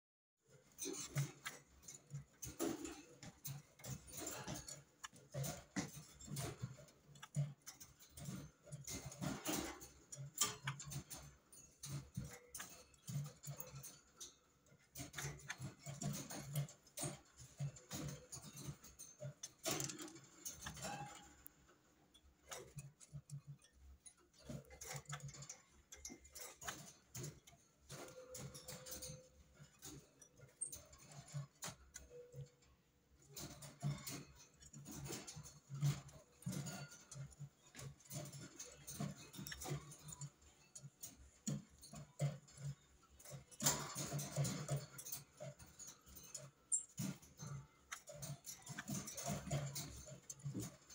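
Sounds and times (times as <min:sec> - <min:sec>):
bird hopping in wire cage: 0:00.6 - 0:21.5.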